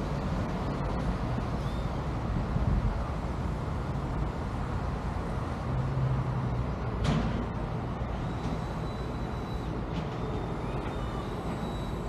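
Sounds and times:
passing road traffic: 0.0s - 12.0s.

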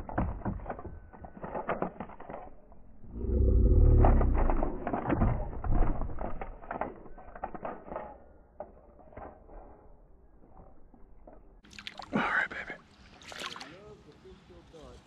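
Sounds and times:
water splashes and drips: 11.6s - 12.3s, 12.9s - 13.9s.

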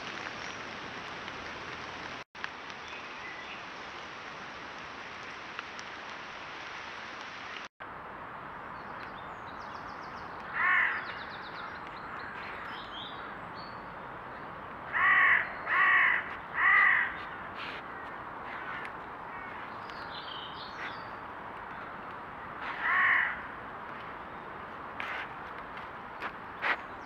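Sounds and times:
crow cawing: 10.5s - 11.4s, 14.9s - 19.7s, 22.6s - 23.5s.

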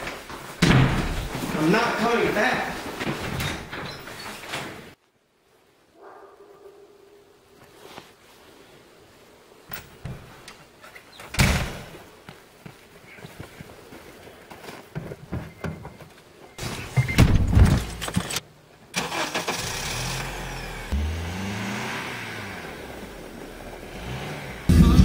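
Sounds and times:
footsteps crunching in snow: 12.1s - 15.3s
car engine starting and revving: 19.0s - 25.0s.

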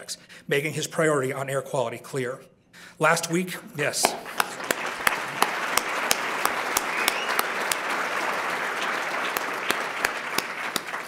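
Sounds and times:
audience applauding: 4.0s - 11.0s
single sharp claps: 4.0s - 11.0s.

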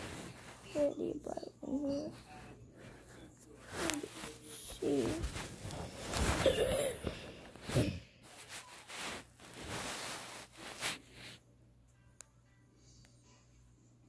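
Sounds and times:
fabric rustling on microphone: 0.0s - 1.0s, 1.8s - 11.4s.

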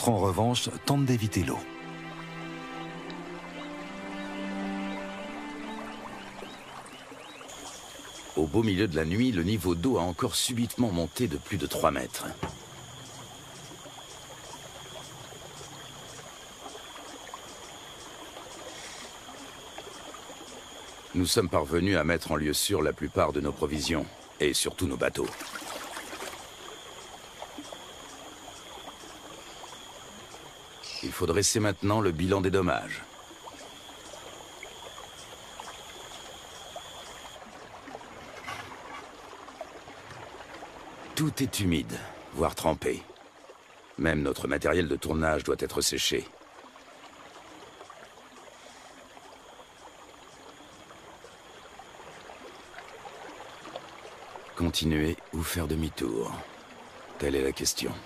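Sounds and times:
pulsing insect drone: 0.0s - 43.1s, 45.0s - 58.0s
river water rushing: 0.0s - 44.5s.

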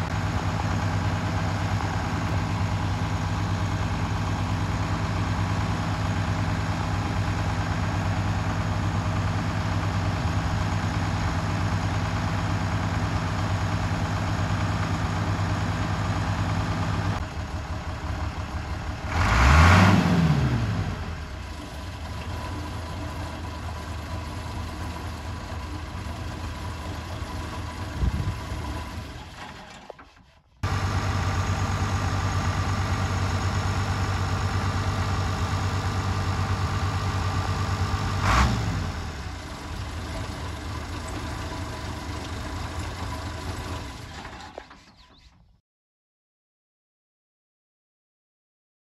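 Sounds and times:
diesel tractor engine idling: 0.0s - 45.3s
engine revving: 18.8s - 22.6s, 30.6s - 40.5s
engine knock: 39.1s - 44.9s.

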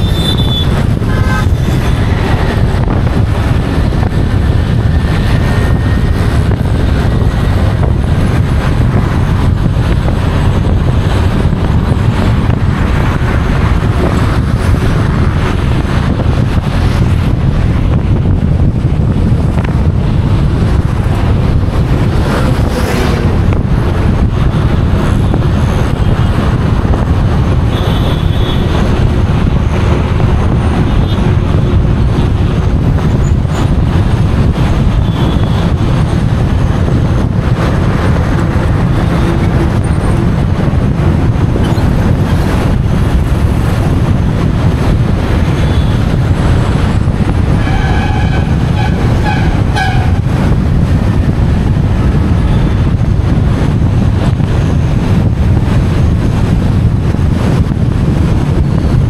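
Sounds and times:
vehicle horn: 0.0s - 2.1s, 27.7s - 28.8s, 35.0s - 35.7s, 47.6s - 50.2s
car road and wind noise: 0.0s - 59.0s
passing traffic: 0.0s - 59.0s.

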